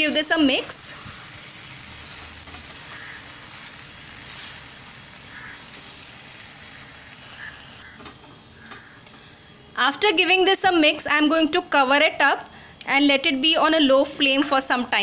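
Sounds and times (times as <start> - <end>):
chicken sizzling in oil: 0.0 - 8.0.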